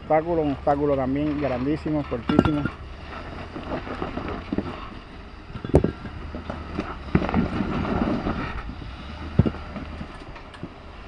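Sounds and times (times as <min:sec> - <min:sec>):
wind buffeting microphone: 0:02.7 - 0:11.0.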